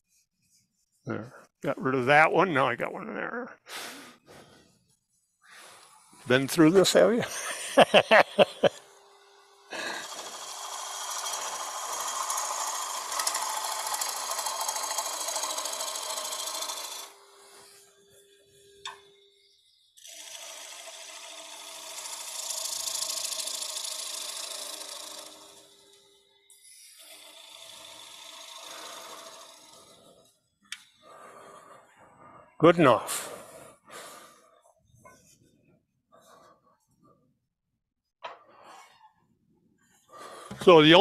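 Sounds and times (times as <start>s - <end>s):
lathe humming: 5.6s - 31.7s
gouge rasping wood on lathe: 9.7s - 18.0s, 20.0s - 30.3s.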